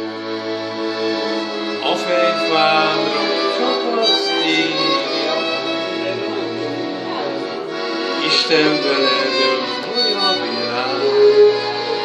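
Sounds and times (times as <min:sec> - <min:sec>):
violin melody with vibrato: 0:00.0 - 0:12.0
person singing: 0:01.8 - 0:05.5.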